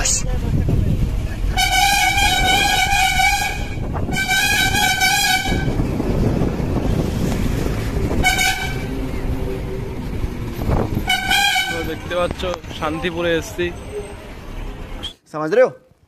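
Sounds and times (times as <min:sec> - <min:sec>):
bus engine and road rumble: 0:00.0 - 0:16.0
bus horn honking: 0:01.5 - 0:05.9, 0:08.0 - 0:09.2, 0:10.8 - 0:12.1.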